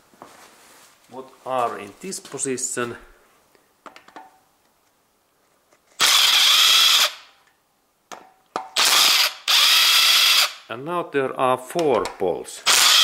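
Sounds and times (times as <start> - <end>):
cordless power tool running: 6.0 - 7.2, 8.8 - 10.6, 12.7 - 13.0.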